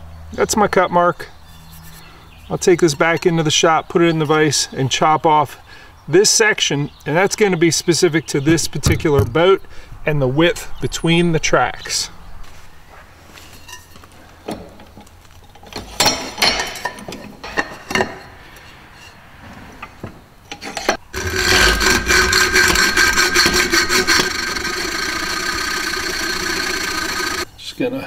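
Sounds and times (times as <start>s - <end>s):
hacksaw cutting metal tube: 20.5s - 27.5s.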